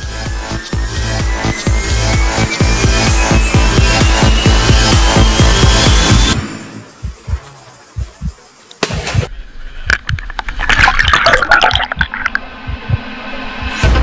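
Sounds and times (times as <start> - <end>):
music bass beat: 0.0 - 8.4, 11.8 - 13.1
underwater rushing and bubbling: 9.9 - 13.1
person splashing into water: 10.4 - 12.4.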